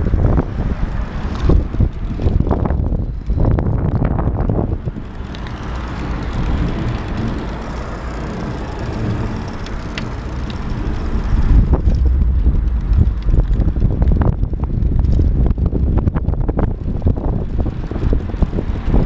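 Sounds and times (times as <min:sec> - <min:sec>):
tyres rumbling on road: 0:00.0 - 0:19.0
wind buffeting microphone: 0:00.0 - 0:19.0
short ticks: 0:01.3 - 0:15.6.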